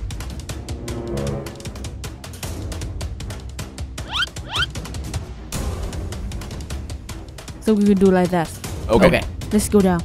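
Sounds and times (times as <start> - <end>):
background music with a steady beat: 0.0 - 10.0
short rising squeaks: 4.0 - 4.7.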